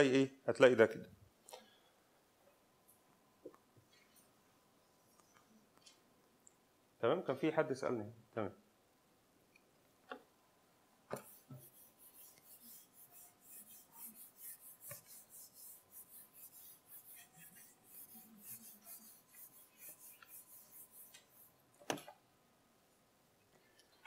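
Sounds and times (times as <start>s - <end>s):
eraser wiping whiteboard: 11.2s - 21.6s.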